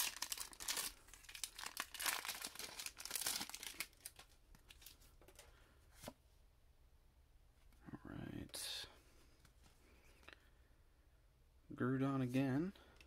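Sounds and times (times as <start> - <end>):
foil wrapper crinkling and tearing: 0.0 - 4.9.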